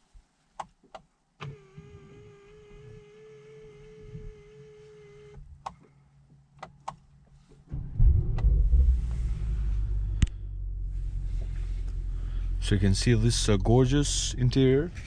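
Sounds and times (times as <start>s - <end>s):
small electric motor whirring: 1.5s - 5.4s
car engine starting and idling: 7.7s - 15.0s.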